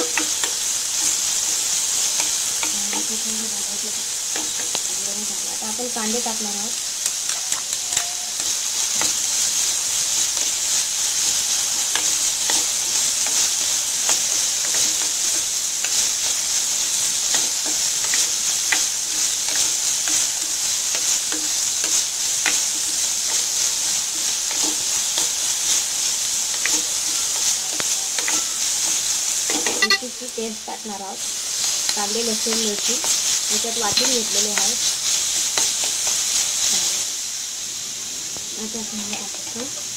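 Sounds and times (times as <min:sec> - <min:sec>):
spatula scraping and tapping pan: 0:00.0 - 0:03.6, 0:04.2 - 0:05.0, 0:17.2 - 0:25.8, 0:26.5 - 0:30.0, 0:31.8 - 0:36.2
vegetables sizzling in oil: 0:00.0 - 0:39.9.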